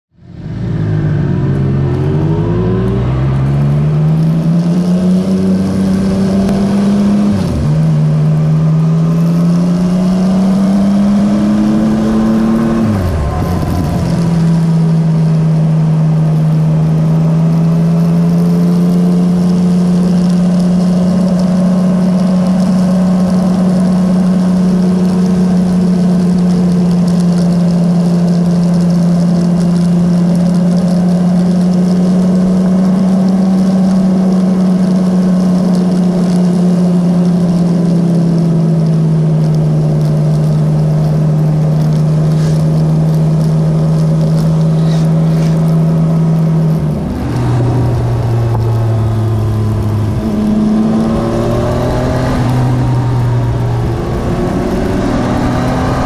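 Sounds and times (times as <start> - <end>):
motorcycle engine accelerating: 0.1 - 56.0.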